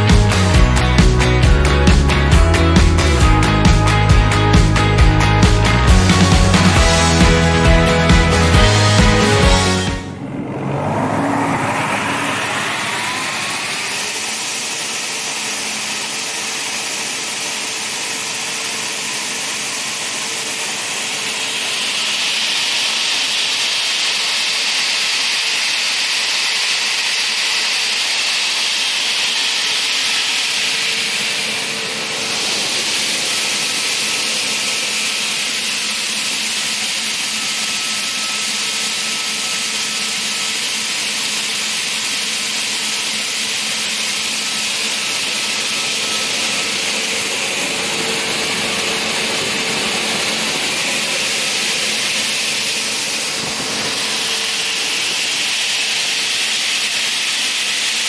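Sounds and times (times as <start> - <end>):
saw whirring with high whine: 0.0 - 58.0
hiss: 21.2 - 38.3.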